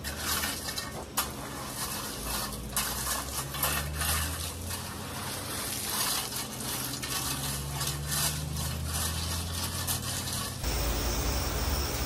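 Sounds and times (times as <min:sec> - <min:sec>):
rake scraping gravel: 0:00.0 - 0:12.0
low steady hum: 0:10.6 - 0:12.0.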